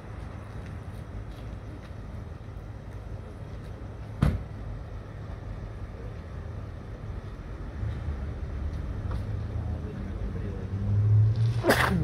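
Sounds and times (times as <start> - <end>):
low rumble of idling vehicles: 0.0 - 10.7
sharp thump: 4.2 - 4.5.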